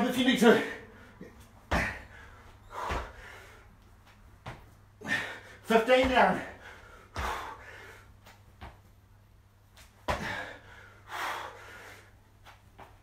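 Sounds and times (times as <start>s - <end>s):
hard breath out: 0.8s - 3.8s, 6.4s - 8.2s, 10.1s - 12.2s.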